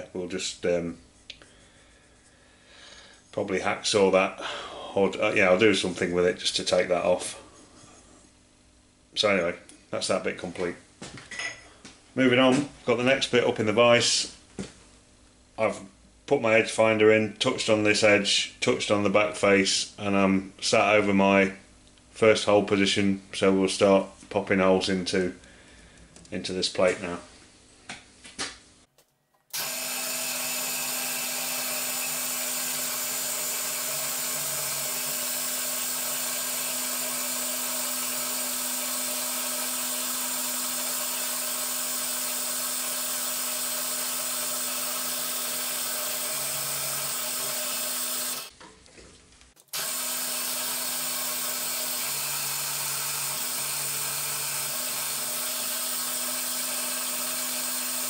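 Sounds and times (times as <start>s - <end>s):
drill spindle humming: 29.5s - 48.5s, 49.6s - 58.0s.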